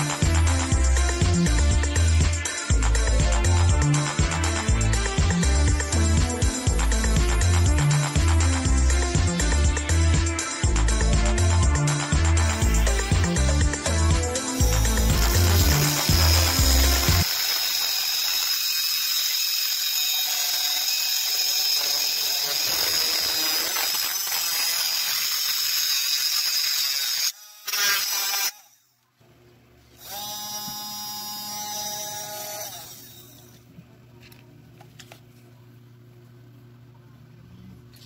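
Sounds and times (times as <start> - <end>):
motor whine: 0.0 - 9.1, 10.7 - 24.4, 30.0 - 33.6
high-pitched grinding hiss: 14.5 - 27.4.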